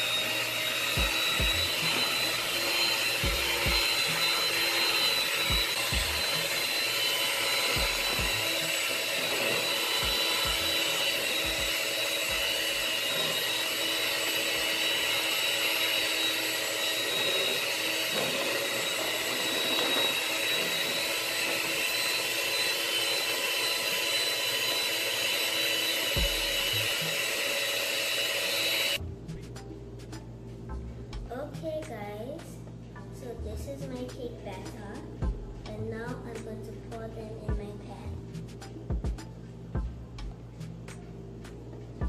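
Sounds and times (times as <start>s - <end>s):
electric hand mixer whine: 0.0s - 29.0s.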